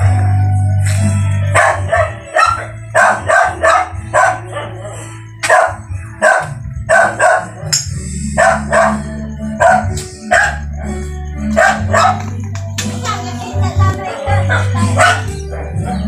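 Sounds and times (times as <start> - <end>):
dog barking: 1.5 - 10.7, 11.5 - 12.3, 14.3 - 16.0.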